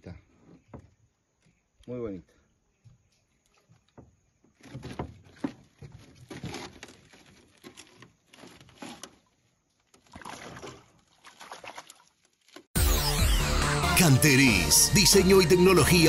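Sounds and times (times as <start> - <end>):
knocks and rustles in metal boat: 3.8 - 10.9
fish splashing into water: 10.0 - 12.4.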